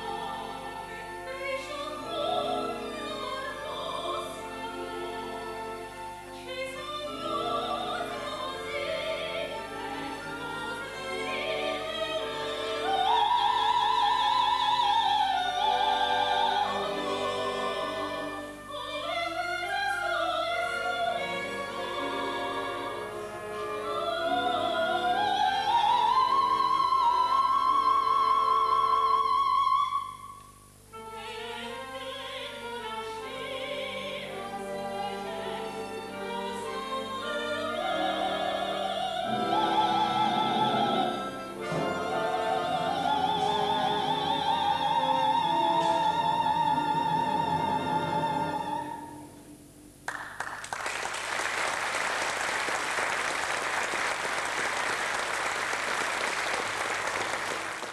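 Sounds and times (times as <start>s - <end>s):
soprano singing: 0.0s - 30.3s, 30.9s - 49.7s
orchestra playing: 15.5s - 19.1s, 31.2s - 49.6s
audience applauding: 50.1s - 57.9s.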